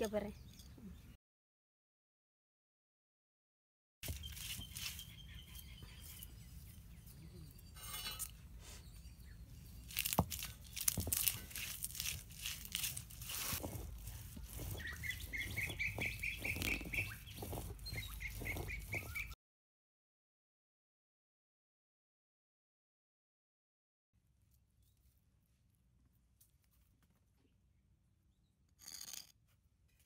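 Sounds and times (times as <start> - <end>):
bird chirping: 4.0 - 11.1, 14.4 - 19.4
stone roller grinding on slab: 10.0 - 19.4.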